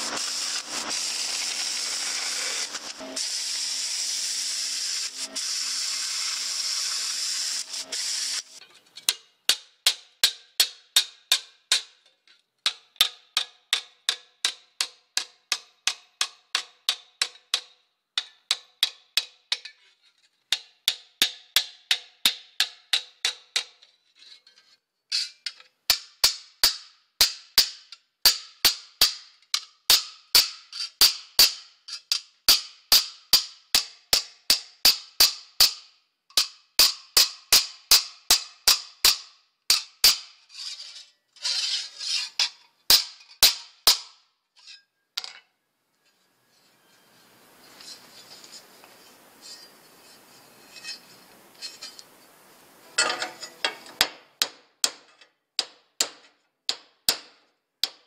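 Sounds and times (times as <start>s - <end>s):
hammer striking sheet steel: 0.0s - 4.0s, 32.5s - 40.4s, 42.4s - 44.2s
faint hiss: 0.0s - 8.6s, 46.5s - 54.0s.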